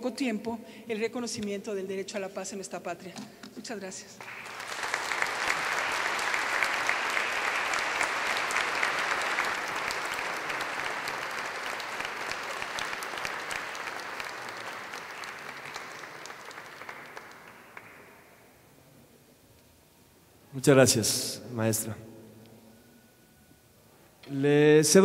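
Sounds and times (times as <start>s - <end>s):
audience applauding: 4.2s - 18.3s.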